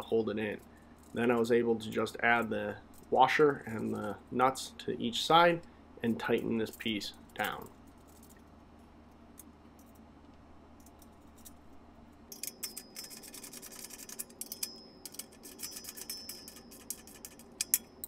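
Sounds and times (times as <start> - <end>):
hand wrench clicking: 12.3 - 18.0.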